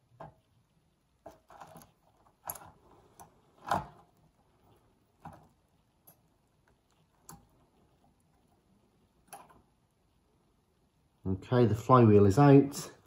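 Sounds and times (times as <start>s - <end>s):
small clicks of metal and plastic parts: 1.2s - 8.6s, 9.2s - 9.8s.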